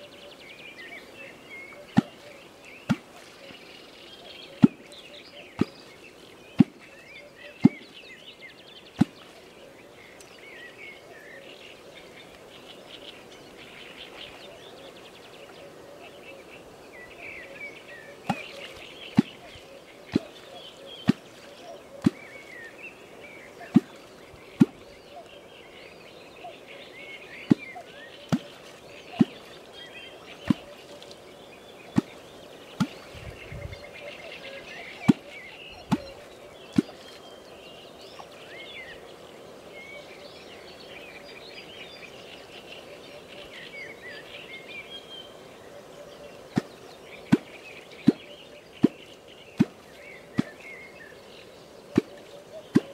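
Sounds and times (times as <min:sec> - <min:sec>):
small birds chirping: 0:00.0 - 0:52.9
sharp water pops: 0:01.8 - 0:03.6, 0:04.5 - 0:05.8, 0:06.6 - 0:06.9, 0:07.6 - 0:08.0, 0:08.9 - 0:09.4, 0:18.2 - 0:22.7, 0:23.6 - 0:24.9, 0:27.3 - 0:29.6, 0:30.3 - 0:31.2, 0:31.8 - 0:33.4, 0:34.8 - 0:37.2, 0:46.5 - 0:50.8, 0:51.9 - 0:52.9.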